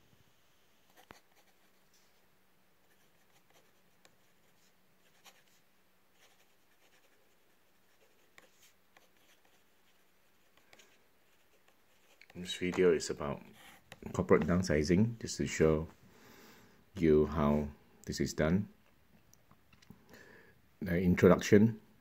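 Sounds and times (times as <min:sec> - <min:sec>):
pen nib scratching paper: 0:00.9 - 0:01.8, 0:02.8 - 0:05.6, 0:06.2 - 0:12.5.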